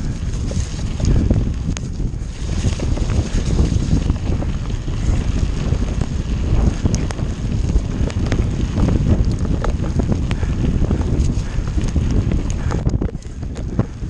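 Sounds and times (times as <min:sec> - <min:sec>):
bike rattling and clicking: 0:00.0 - 0:14.0
bike tyres rumbling on track: 0:00.0 - 0:14.0
wind buffeting microphone: 0:00.0 - 0:14.0.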